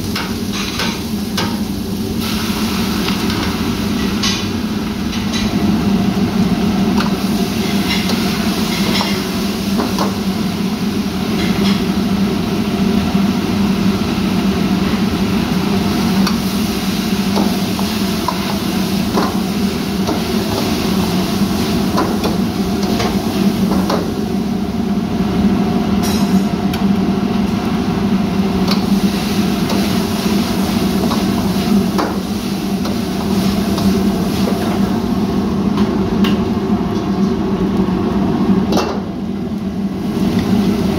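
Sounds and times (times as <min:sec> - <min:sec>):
gas burner roaring: 0:00.0 - 0:40.9.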